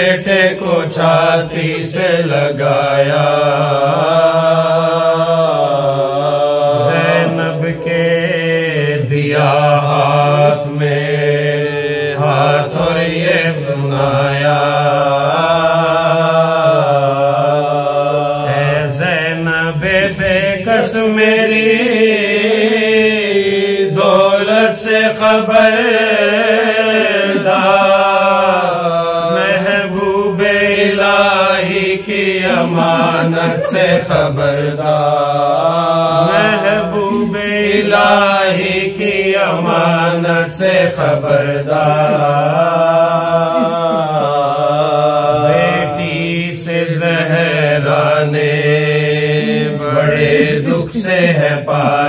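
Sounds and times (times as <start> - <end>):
man chanting into a microphone: 0.0 - 52.0.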